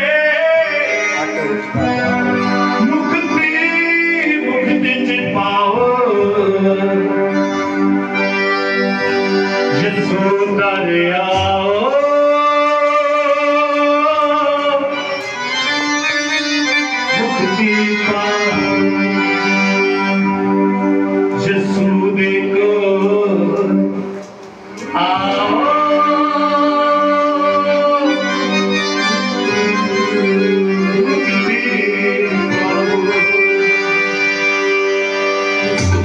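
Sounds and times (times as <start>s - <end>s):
man singing through microphone: 0.0s - 7.6s, 9.7s - 15.2s, 17.0s - 19.4s, 21.3s - 34.1s
electronic keyboard chords: 0.0s - 36.0s.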